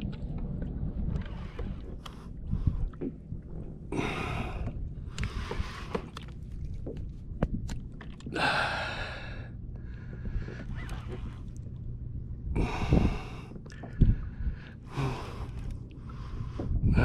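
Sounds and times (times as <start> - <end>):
wind rumble on microphone: 0.0 - 17.0
person breathing hard: 8.4 - 10.7, 12.6 - 17.0.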